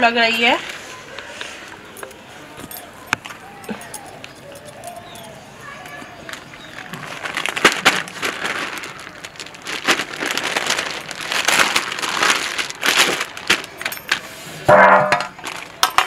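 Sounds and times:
rustling and crinkling: 0.0s - 16.0s
plate knocking: 14.7s - 15.4s.

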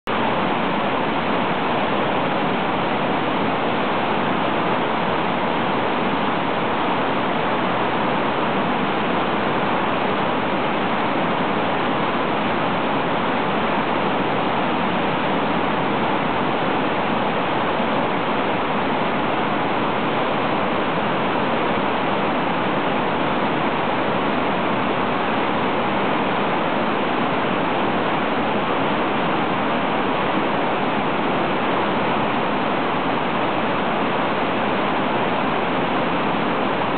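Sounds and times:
river whitewater rushing: 0.1s - 36.9s.

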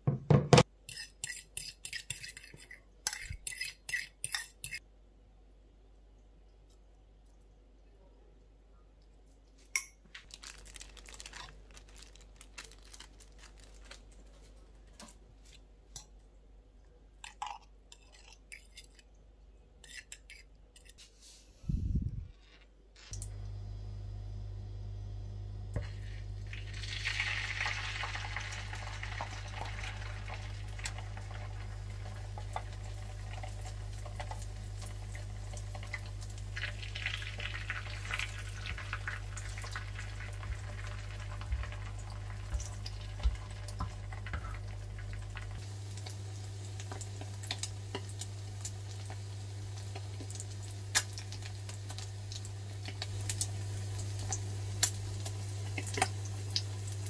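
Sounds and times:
steady low hum: 21.6s - 22.3s, 23.2s - 26.8s
batter sizzling in hot oil: 25.8s - 57.0s.

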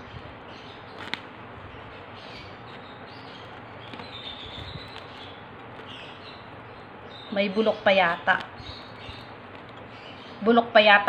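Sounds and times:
knife prying fruit husk: 3.4s - 6.7s.

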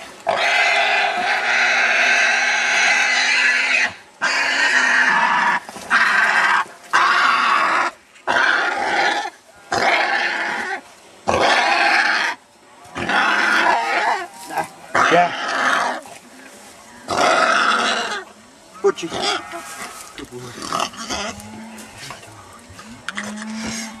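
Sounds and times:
small pig squealing loudly: 0.3s - 12.4s, 13.0s - 14.3s, 14.9s - 16.0s.

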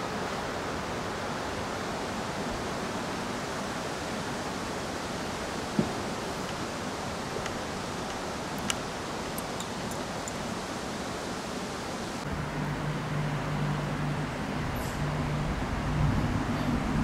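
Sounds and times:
rushing outdoor background noise: 0.0s - 17.0s
light clicks: 7.4s - 10.4s.

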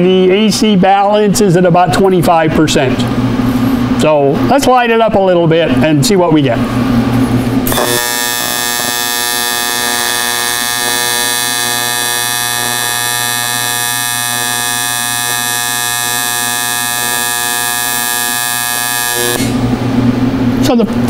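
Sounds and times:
welding arc buzzing: 7.2s - 19.7s.

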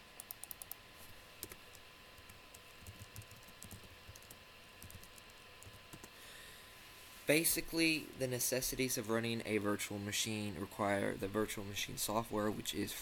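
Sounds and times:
faint keyboard typing: 0.2s - 0.8s, 1.4s - 6.2s.

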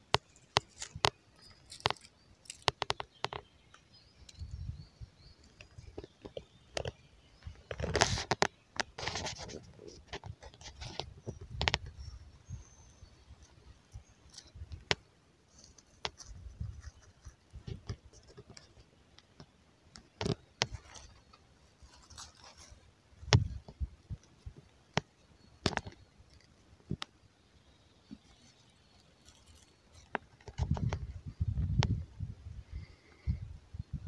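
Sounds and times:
stones clicking and knocking: 0.0s - 4.5s.

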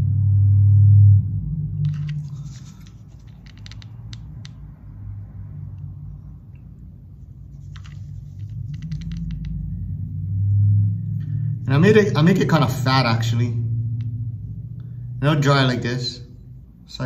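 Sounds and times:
low steady hum: 0.0s - 17.0s
glue gun clicks and crackles: 1.9s - 4.6s.

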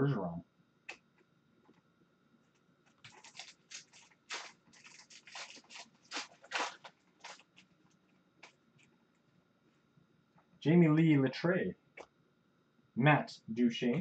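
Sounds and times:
foil wrapper tearing and crinkling: 2.9s - 7.7s.

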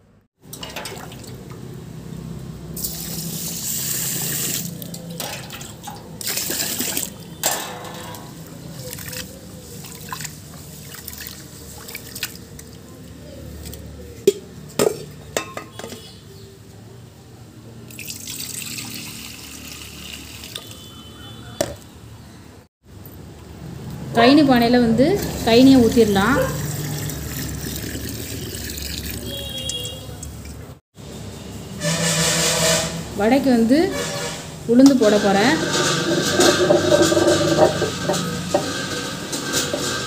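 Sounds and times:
water gushing into a pot: 2.8s - 7.2s, 8.6s - 12.8s, 17.9s - 20.8s, 26.6s - 29.9s
rice and water sloshing: 5.2s - 13.8s
pot knocking: 35.6s - 40.0s.

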